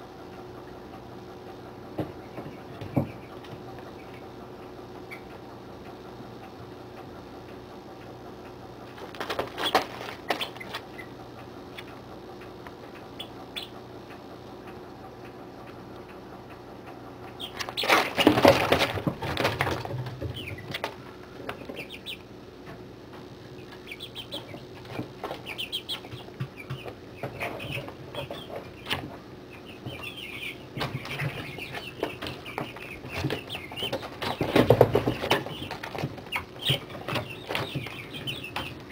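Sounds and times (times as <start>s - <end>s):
chicks peeping: 0.0s - 38.9s
steady low hum: 0.0s - 38.9s
chicks scuffling and flapping: 8.8s - 12.0s, 17.3s - 38.9s.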